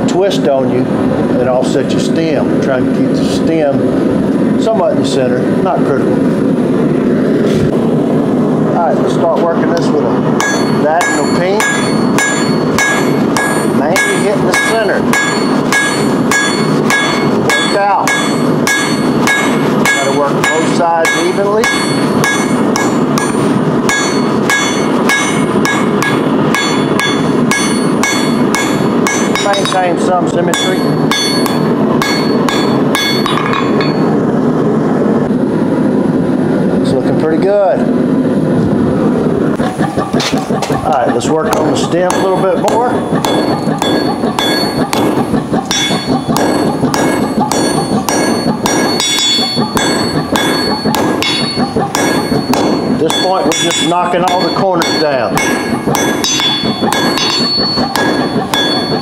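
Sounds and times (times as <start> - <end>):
hammer ringing on anvil: 10.4 - 34.1, 41.5 - 59.0.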